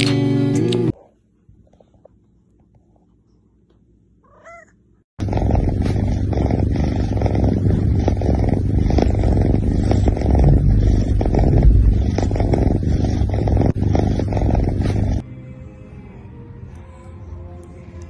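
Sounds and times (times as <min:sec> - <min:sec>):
cat purring loudly: 0:05.2 - 0:15.2.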